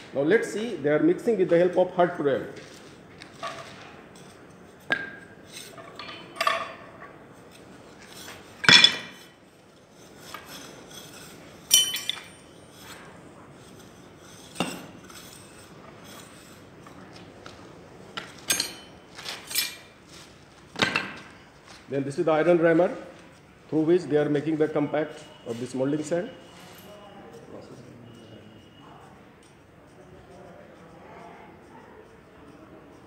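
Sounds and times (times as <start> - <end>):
sharp metallic clinks: 10.5 - 12.8.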